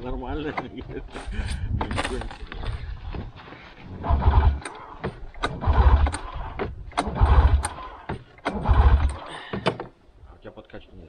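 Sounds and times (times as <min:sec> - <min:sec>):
sharp clicks: 0:04.2 - 0:09.9.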